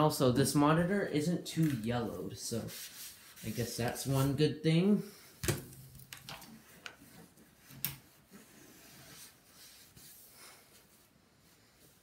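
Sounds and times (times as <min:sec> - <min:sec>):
paper towel rustling: 0:00.0 - 0:04.5, 0:06.5 - 0:12.0.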